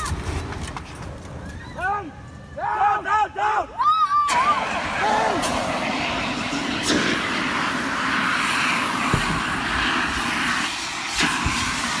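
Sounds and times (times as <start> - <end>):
fire extinguisher hissing: 4.3 - 12.0.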